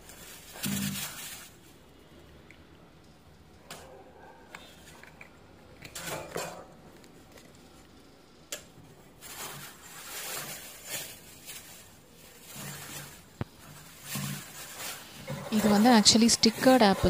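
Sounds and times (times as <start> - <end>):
plastic bag crinkling: 0.0 - 1.8, 9.1 - 17.0.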